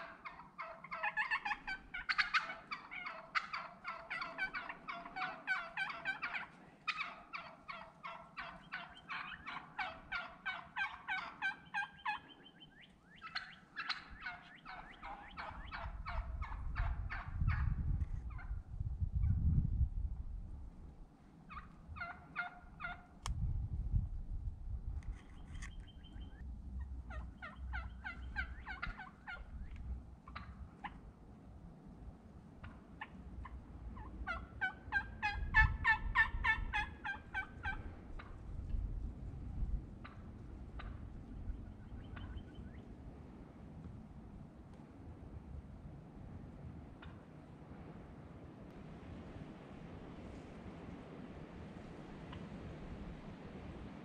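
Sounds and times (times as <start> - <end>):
turkey hen yelping: 0.0 - 17.7, 21.5 - 23.2, 25.4 - 29.5, 30.2 - 31.0, 32.6 - 38.4, 40.0 - 42.8, 47.0 - 47.2.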